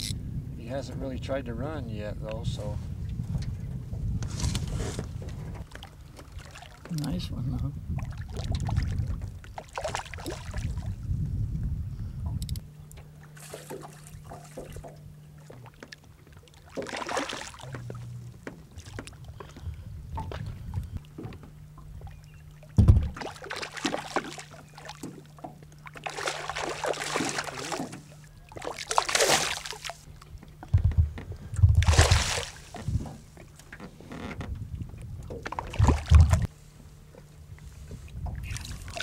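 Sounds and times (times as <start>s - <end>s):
faint low hum: 0.0s - 39.0s
wind bumps on microphone: 0.2s - 5.7s, 7.3s - 9.5s, 10.6s - 12.6s, 22.8s - 23.2s, 30.7s - 33.2s, 34.4s - 36.5s
water lapping against boat: 2.6s - 39.0s.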